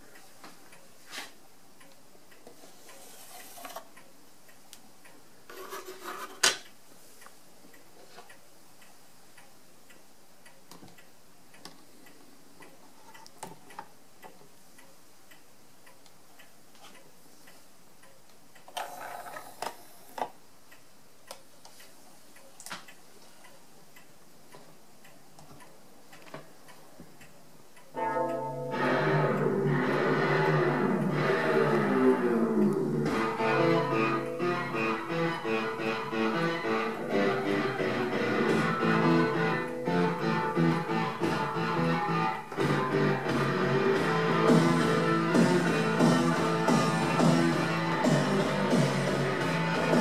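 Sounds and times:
faint ticks and clicks: 0:00.0 - 0:05.3, 0:06.6 - 0:32.9
low hiss: 0:00.0 - 0:50.0.

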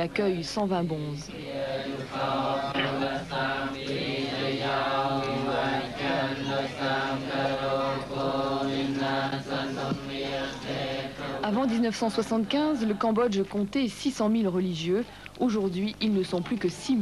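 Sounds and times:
monks chanting in unison: 0:01.3 - 0:11.8.

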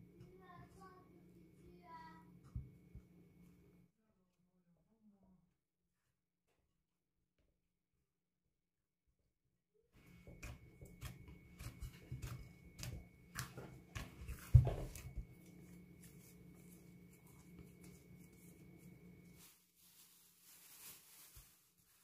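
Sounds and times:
faint steady hum: 0:00.0 - 0:03.9, 0:10.0 - 0:19.4.

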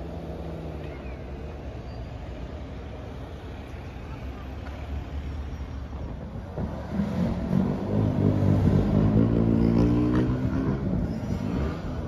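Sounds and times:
vehicle engine accelerating past: 0:06.6 - 0:12.0.

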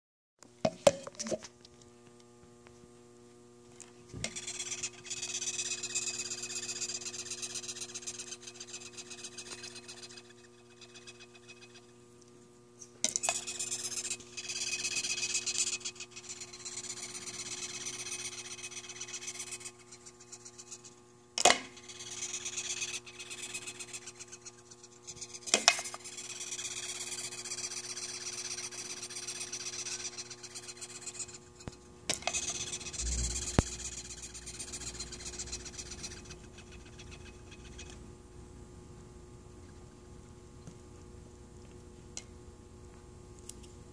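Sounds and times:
insect squeaking raspy chirring: 0:04.4 - 0:11.8, 0:13.3 - 0:20.7, 0:21.8 - 0:31.5, 0:32.3 - 0:38.0.

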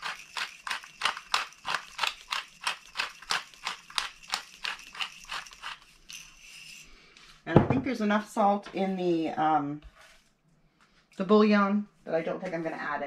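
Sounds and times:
pepper mill grinding: 0:00.0 - 0:07.0.

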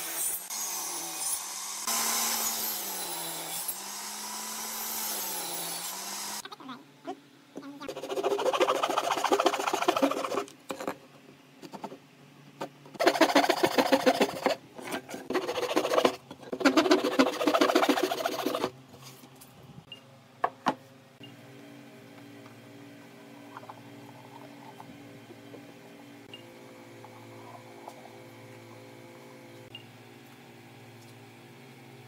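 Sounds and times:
hand saw cutting wood: 0:07.9 - 0:10.5, 0:13.0 - 0:18.7.

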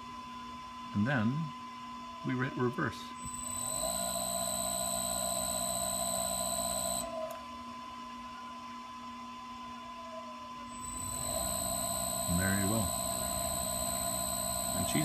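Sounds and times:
floor grinder motor whining: 0:03.3 - 0:07.1, 0:10.8 - 0:15.0.

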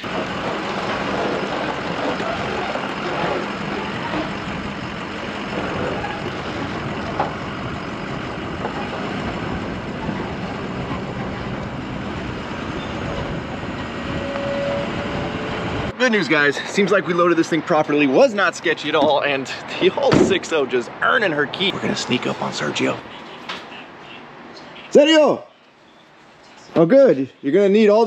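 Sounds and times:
wind noise: 0:00.0 - 0:15.9
truck engine hum: 0:00.0 - 0:28.0.

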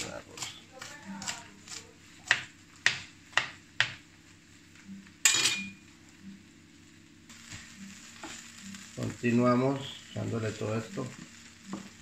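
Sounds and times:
knife chopping on plastic board: 0:00.3 - 0:04.0
knife clattering on tiled counter: 0:05.3 - 0:05.7.

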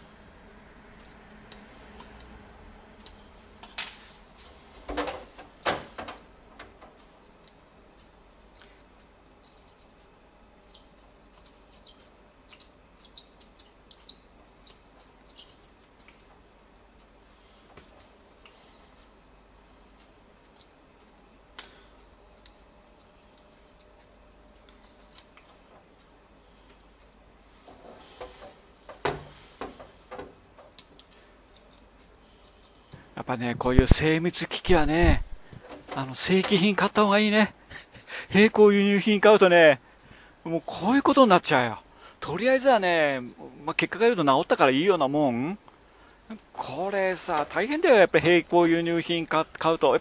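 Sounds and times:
low steady hum: 0:00.0 - 0:50.0.

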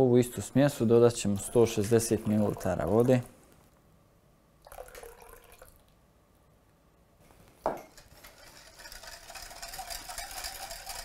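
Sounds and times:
water trickling into a bowl: 0:01.1 - 0:03.3, 0:04.7 - 0:05.9
whisk beating batter in glass bowl: 0:07.8 - 0:11.0.

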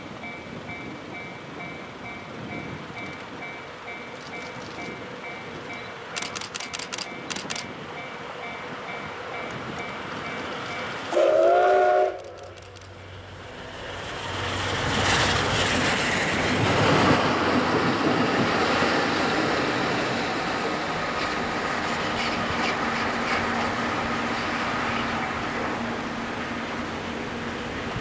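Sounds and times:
train wheels on rails: 0:00.0 - 0:28.0
steam locomotive whistle: 0:11.1 - 0:12.6.

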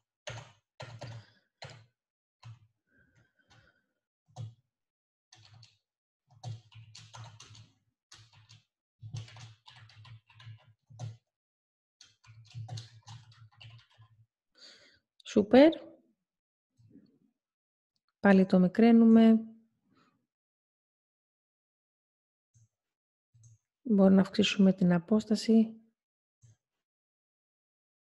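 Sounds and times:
typing on computer keyboard: 0:00.3 - 0:02.6, 0:04.4 - 0:04.6, 0:05.3 - 0:11.3, 0:12.0 - 0:14.2.

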